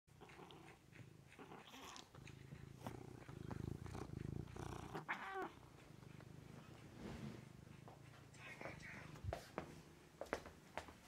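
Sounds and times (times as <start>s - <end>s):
cat purring: 0.1s - 10.0s
cat meow: 5.0s - 5.6s.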